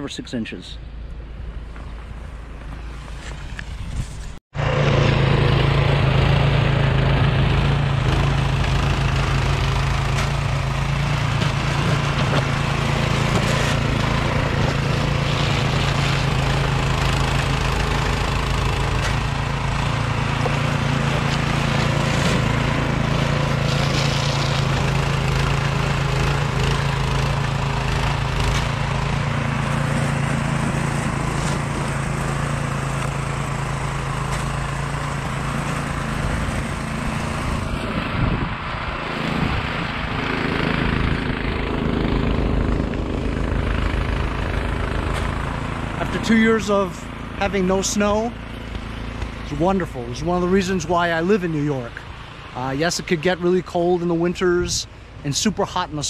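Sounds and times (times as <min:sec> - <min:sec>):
snowblower running: 0:04.6 - 0:56.0.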